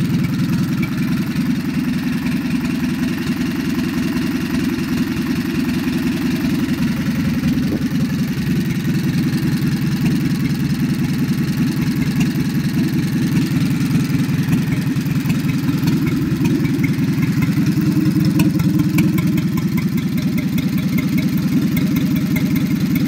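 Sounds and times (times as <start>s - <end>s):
petrol engine running steadily: 0.0s - 23.0s
faint regular ticking: 10.0s - 23.0s.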